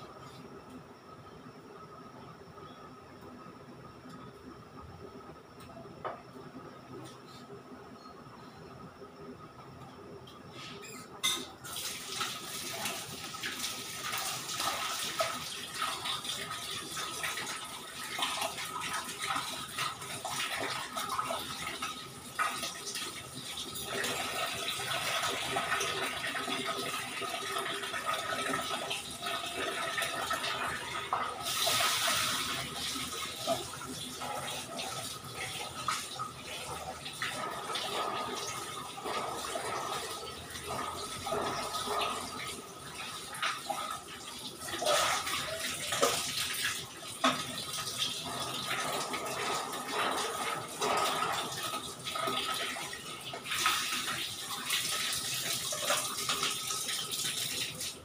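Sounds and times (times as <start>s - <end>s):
tap water splashing into sink: 44.8s - 47.9s.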